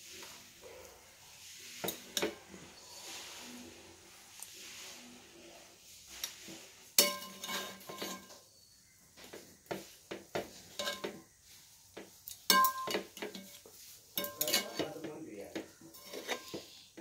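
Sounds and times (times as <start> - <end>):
metal ladle clinking on steel plates: 7.0 - 8.4, 10.7 - 11.2, 12.5 - 15.1, 15.9 - 16.8.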